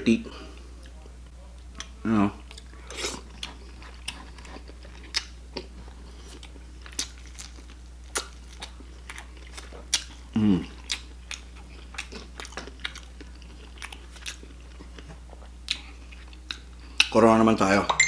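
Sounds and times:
chewing crab shell: 0:01.7 - 0:17.2
person humming: 0:10.4 - 0:10.7.

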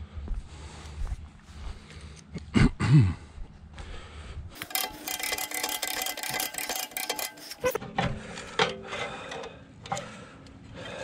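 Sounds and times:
winch clicking and rattling: 0:04.6 - 0:07.8
scattered clicks and knocks: 0:04.6 - 0:10.1.

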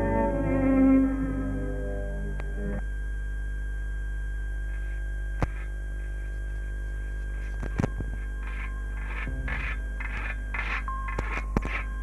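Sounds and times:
mains hum with high whine: 0:00.0 - 0:12.0
faint scraping strokes: 0:08.2 - 0:12.0.

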